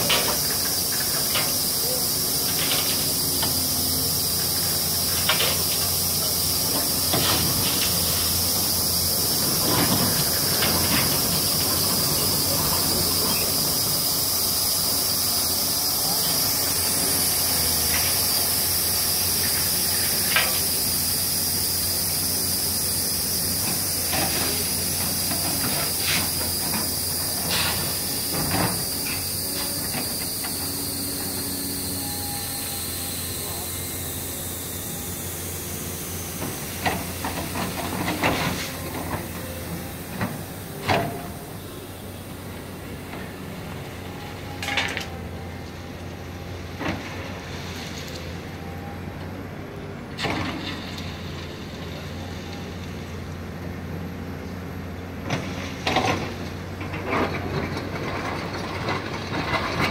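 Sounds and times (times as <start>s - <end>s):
steady high hiss: 0.0s - 44.7s.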